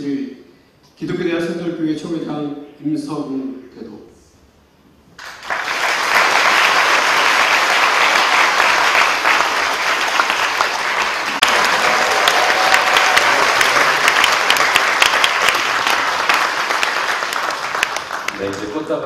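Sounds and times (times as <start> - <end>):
congregation applauding: 5.2 - 19.0.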